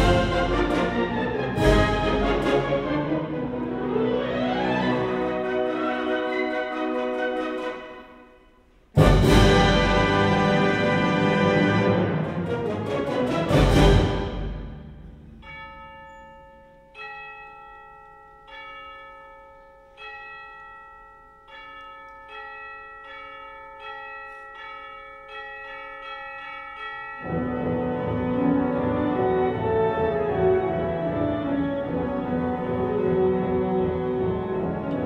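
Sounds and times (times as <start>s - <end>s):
wind band chord: 0.0s - 8.2s, 9.0s - 15.4s
tubular bells tolling: 13.8s - 27.8s.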